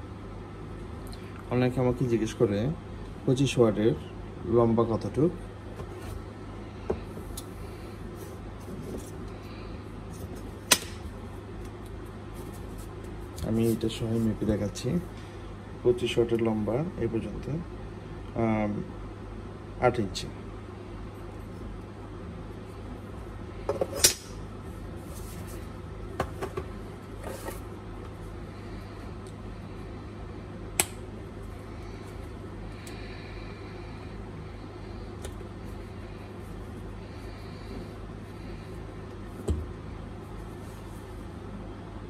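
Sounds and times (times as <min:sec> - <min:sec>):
steady low hum: 0:00.0 - 0:42.0
soft handling noise: 0:06.9 - 0:09.4, 0:11.5 - 0:15.2, 0:24.8 - 0:28.4, 0:39.1 - 0:41.5.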